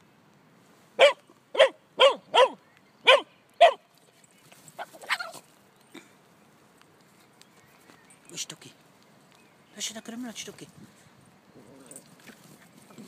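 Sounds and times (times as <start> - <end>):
young dog play-barking: 1.0 - 3.8, 4.8 - 5.4.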